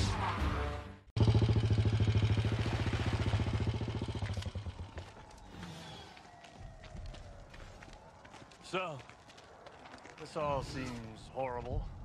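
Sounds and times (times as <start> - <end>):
motorcycle engine running: 1.2 - 5.3.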